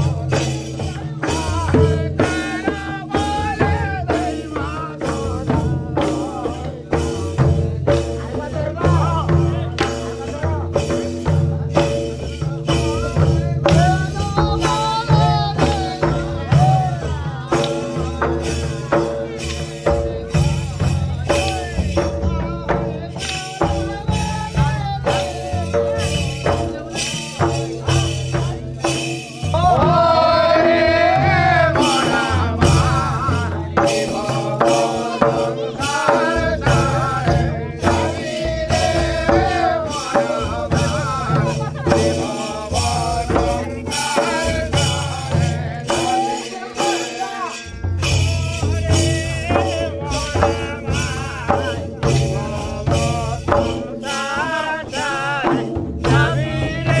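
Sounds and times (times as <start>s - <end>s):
barrel drum beat: 0.0s - 57.0s
sharp percussion: 0.0s - 57.0s
person singing: 29.2s - 57.0s.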